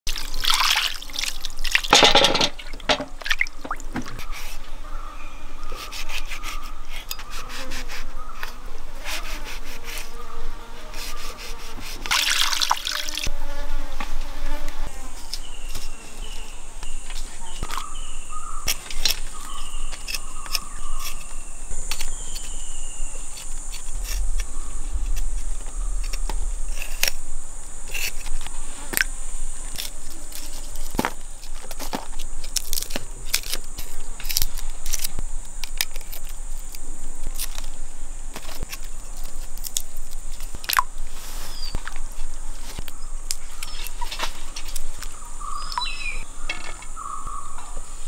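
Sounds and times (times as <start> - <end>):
insects buzzing: 0.1 - 48.0.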